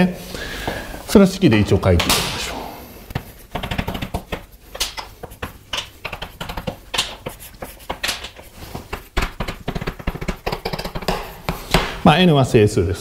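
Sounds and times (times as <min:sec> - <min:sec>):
pen tapping and scratching: 0:03.1 - 0:11.8.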